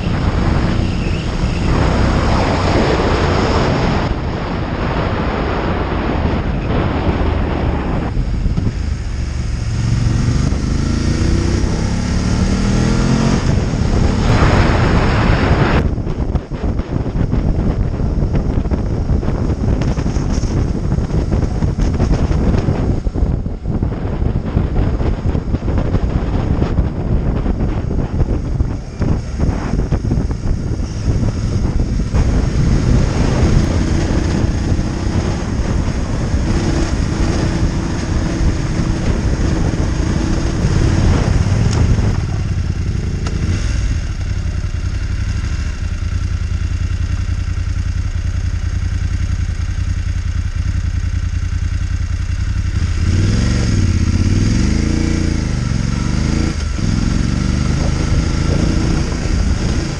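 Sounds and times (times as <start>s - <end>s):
motorcycle engine running: 0.0s - 59.9s
wind noise: 0.0s - 59.9s.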